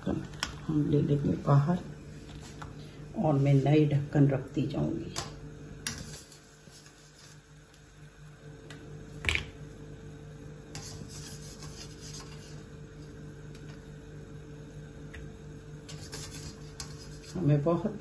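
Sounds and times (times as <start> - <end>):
steady low hum: 0.0 - 18.0
spatula scraping metal tray: 5.9 - 7.4, 10.7 - 12.6, 15.9 - 17.5.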